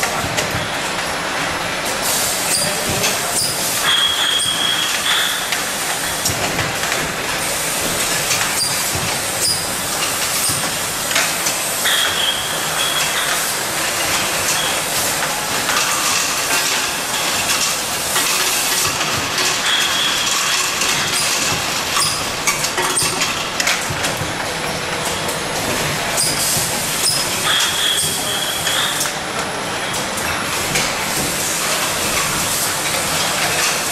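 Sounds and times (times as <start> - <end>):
machine hiss: 1.8 - 6.4, 7.4 - 23.2
glass jars clattering on machine: 15.6 - 29.1.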